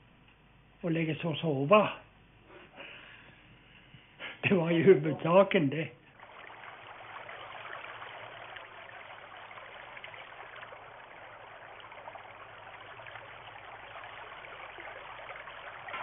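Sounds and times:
stream running over stones: 0:06.1 - 0:16.0.

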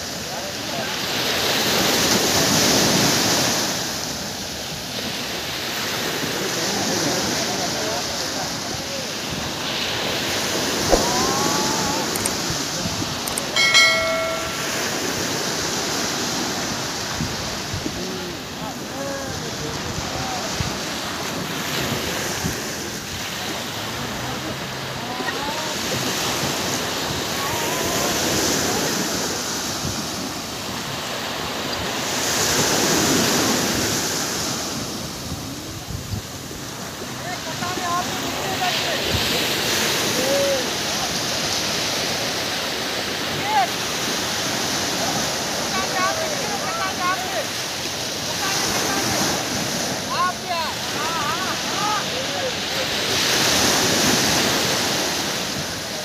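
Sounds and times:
surf washing up on beach: 0:00.0 - 0:56.0
bright bell-like chime: 0:13.3 - 0:15.3.

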